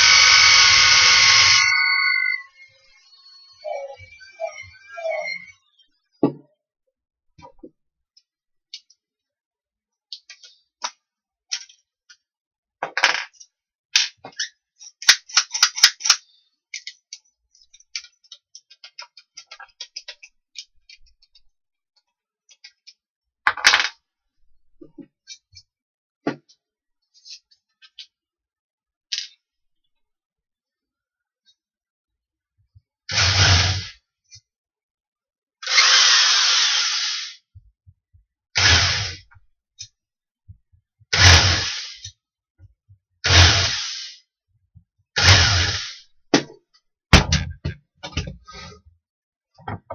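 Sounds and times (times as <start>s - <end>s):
electric drill running: 0.0s - 2.4s, 35.6s - 37.4s, 41.2s - 42.0s.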